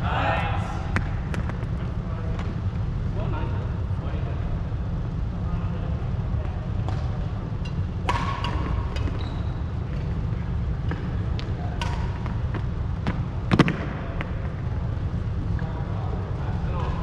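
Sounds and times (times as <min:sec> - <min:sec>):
steady low rumble: 0:00.0 - 0:17.0
rackets striking shuttlecock: 0:06.8 - 0:09.2, 0:10.8 - 0:14.3.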